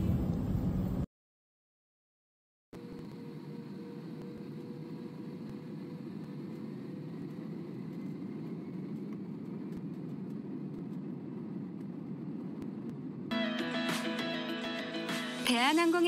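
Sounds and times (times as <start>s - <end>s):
jet engine rumble: 0.0s - 1.1s, 2.8s - 13.3s
faint high whine: 2.8s - 13.4s.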